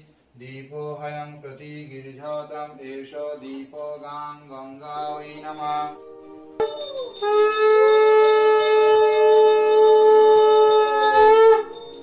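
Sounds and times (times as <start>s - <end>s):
conch shell blowing: 6.6s - 12.0s
hand bell ringing rapidly: 6.6s - 12.0s.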